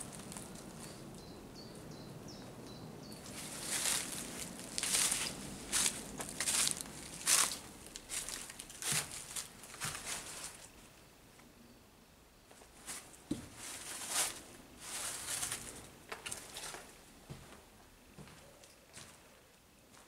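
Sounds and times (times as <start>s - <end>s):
footsteps scuffing on gritty floor: 3.3s - 10.6s.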